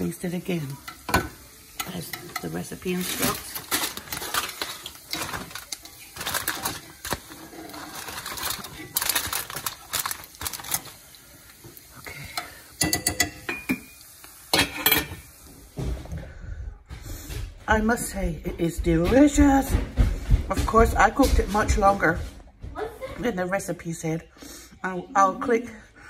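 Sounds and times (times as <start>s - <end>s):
aluminium foil crinkling: 1.7s - 12.2s.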